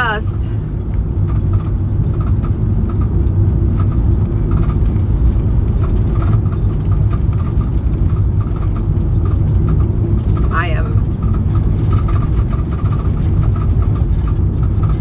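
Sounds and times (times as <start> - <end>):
van engine and road noise: 0.0 - 15.0.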